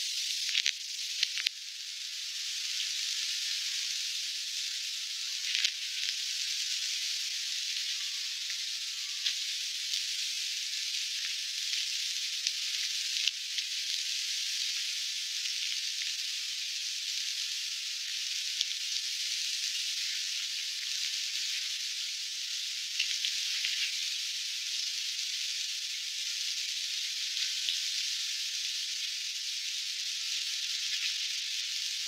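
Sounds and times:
steady hissing noise: 0:00.0 - 0:32.0.

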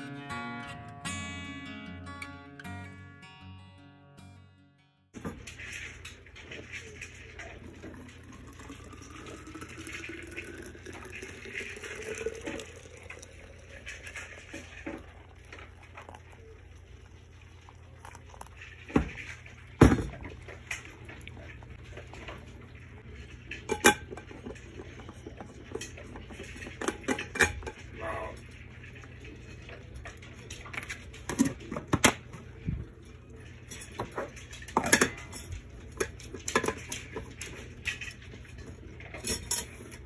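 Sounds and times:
water pouring into a flask: 0:07.2 - 0:34.8.

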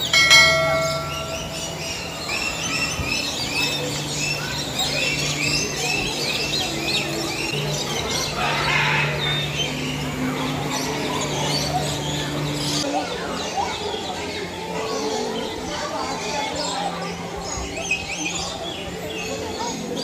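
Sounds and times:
parrots chirping: 0:00.0 - 0:05.7.

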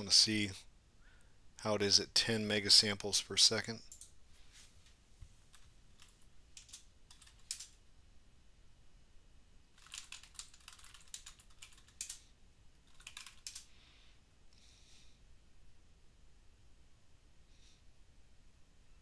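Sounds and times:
typing on computer keyboard: 0:03.9 - 0:04.1, 0:05.5 - 0:07.8, 0:09.8 - 0:13.7.

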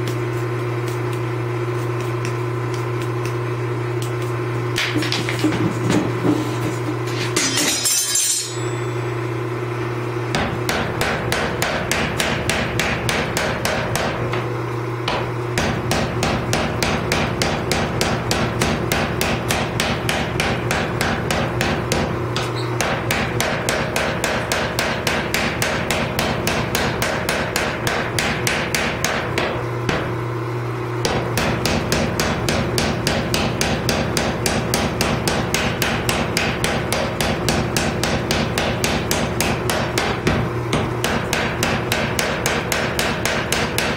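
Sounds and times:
power hammer pounding metal: 0:10.3 - 0:30.2, 0:31.0 - 0:43.9.

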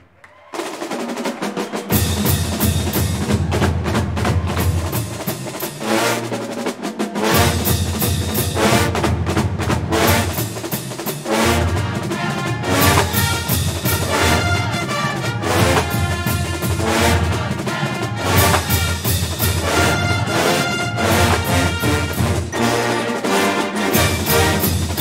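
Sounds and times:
snare drum beat: 0:00.3 - 0:25.0
horn chords: 0:01.8 - 0:25.0
bass drums: 0:01.9 - 0:05.7.

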